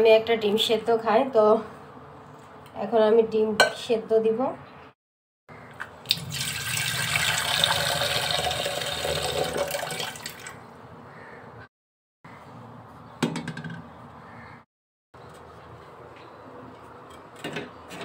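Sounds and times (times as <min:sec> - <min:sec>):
tap water filling metal pot: 0:06.1 - 0:10.6.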